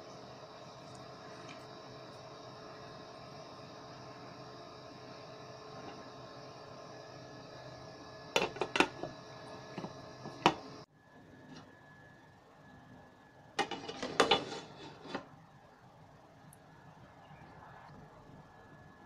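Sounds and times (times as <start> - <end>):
spoon scraping a pan: 13.6 - 15.3.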